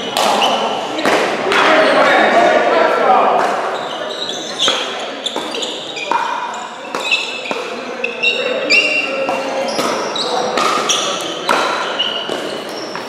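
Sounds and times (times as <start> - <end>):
shoe soles squeaking: 3.7 - 13.0.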